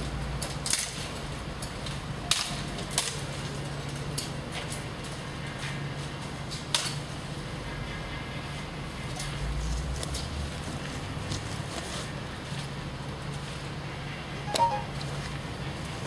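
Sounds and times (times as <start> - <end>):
pruning snaps and cracking twigs: 0.4 - 5.2, 6.5 - 7.0.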